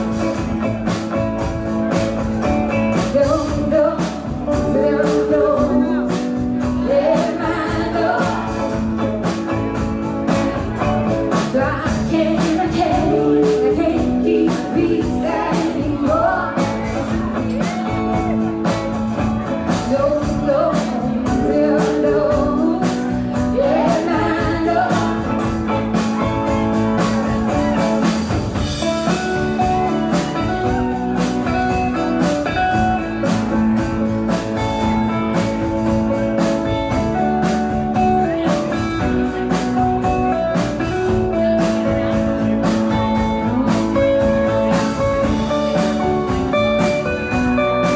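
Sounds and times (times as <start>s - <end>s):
live band playing: 0.0s - 47.9s
woman singing: 2.9s - 9.1s, 11.3s - 18.2s, 19.7s - 26.0s, 43.2s - 45.0s.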